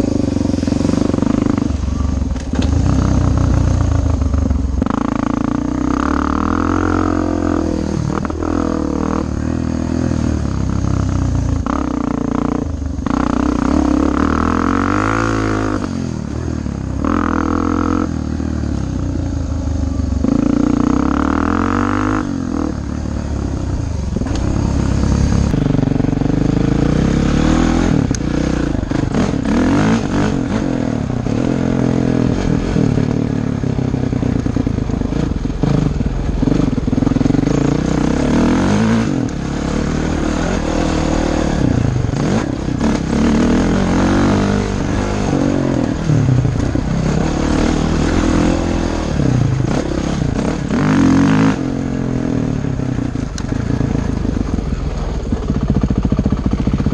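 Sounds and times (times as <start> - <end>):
dirt bike engine revving: 0.0 - 56.9.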